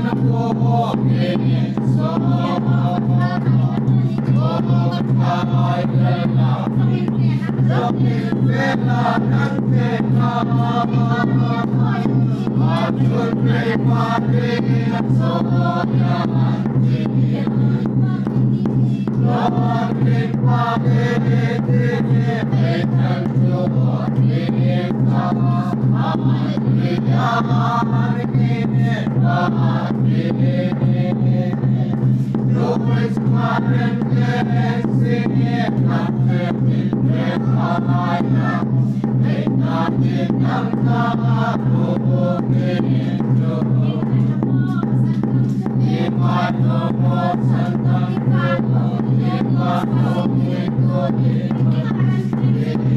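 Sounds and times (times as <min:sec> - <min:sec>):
congregation singing a hymn: 0:00.0 - 0:51.8, 0:52.5 - 0:52.9.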